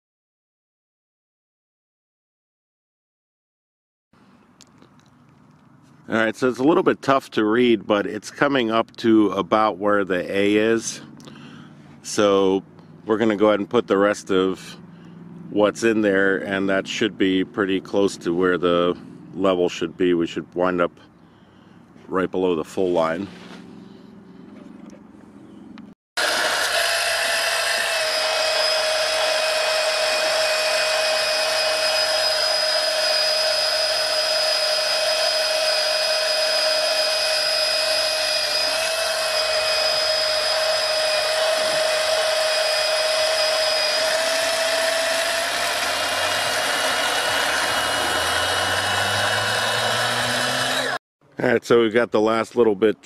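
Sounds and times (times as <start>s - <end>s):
electric pump whining: 26.2s - 51.0s.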